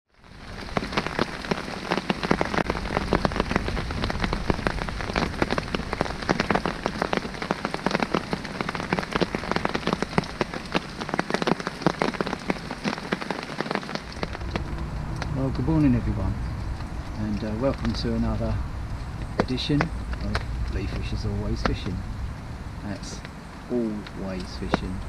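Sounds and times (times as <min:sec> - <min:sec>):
rain patter: 0:00.1 - 0:25.0.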